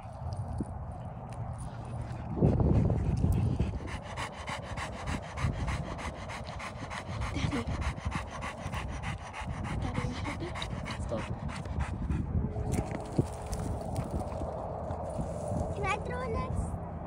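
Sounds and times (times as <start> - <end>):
low rumble: 0.0 - 17.0
dog panting: 1.6 - 12.3.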